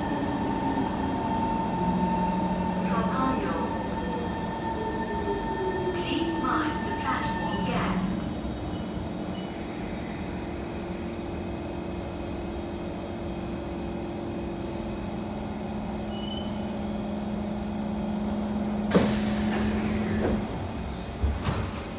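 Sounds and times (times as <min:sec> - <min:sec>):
train electric hum: 0:00.0 - 0:21.9
train doors releasing and sliding: 0:18.9 - 0:21.9.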